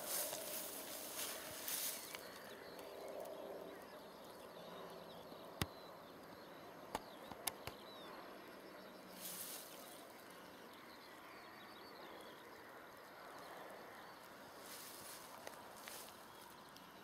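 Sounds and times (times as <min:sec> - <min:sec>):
distant birdsong chirping: 0:00.0 - 0:17.0
sharp clicks: 0:06.9 - 0:07.8.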